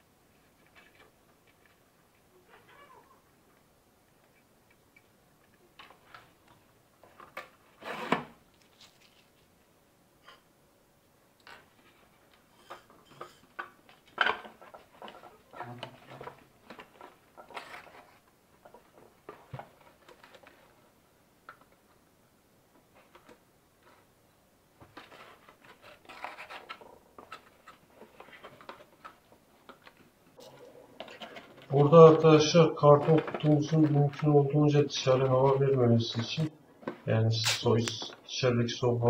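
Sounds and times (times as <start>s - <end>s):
cardboard scraping rustles: 7.1s - 9.3s, 24.8s - 29.2s.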